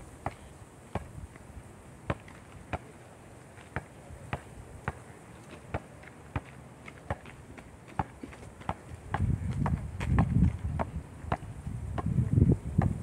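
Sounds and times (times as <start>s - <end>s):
basketball bouncing on dirt: 0.2s - 1.2s, 2.1s - 2.9s, 3.6s - 13.0s.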